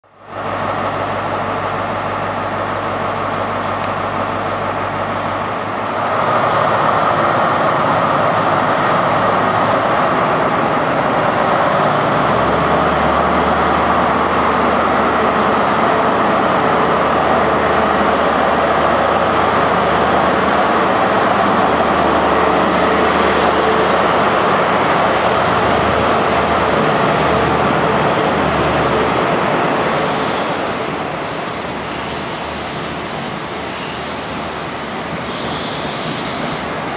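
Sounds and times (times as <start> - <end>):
diesel locomotive engine: 0.0 - 36.9
train wheels and coaches rumbling: 0.1 - 36.9.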